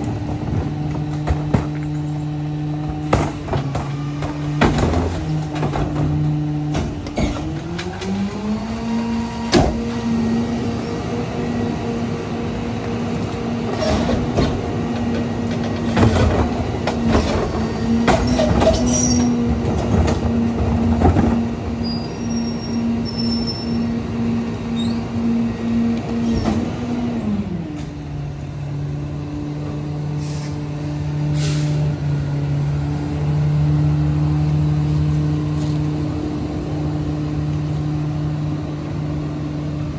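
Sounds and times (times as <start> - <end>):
carts banging against hopper: 0.0 - 2.1, 2.8 - 8.2, 13.6 - 21.6
garbage truck engine revving: 0.0 - 39.9
packer hydraulics running: 0.0 - 39.9
trash thudding: 0.1 - 2.0, 2.8 - 7.7.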